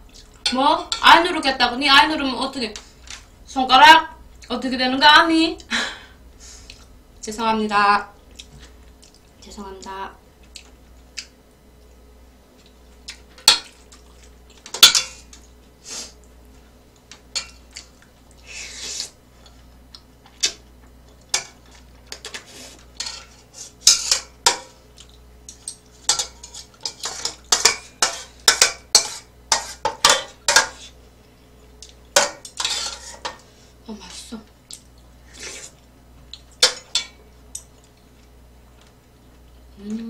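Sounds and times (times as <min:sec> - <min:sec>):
chopsticks and spoon clinking on pan: 0:25.4 - 0:30.8.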